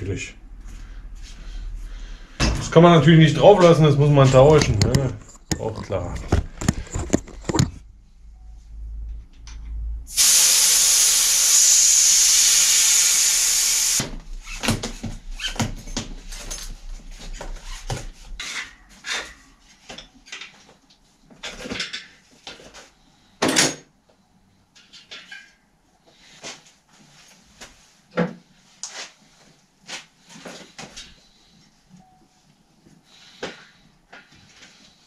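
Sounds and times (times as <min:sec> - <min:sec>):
air hissing out of tyre: 0:10.1 - 0:14.1.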